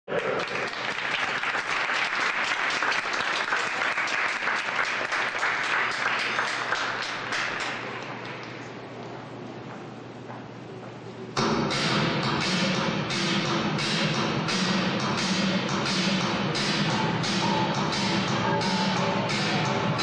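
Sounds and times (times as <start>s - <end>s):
audience applauding: 0.1s - 8.7s.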